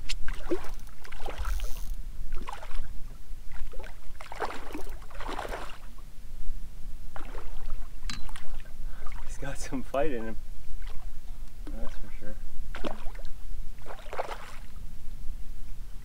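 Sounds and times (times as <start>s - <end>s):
water splashing and sloshing: 0.0s - 6.1s, 7.1s - 14.8s.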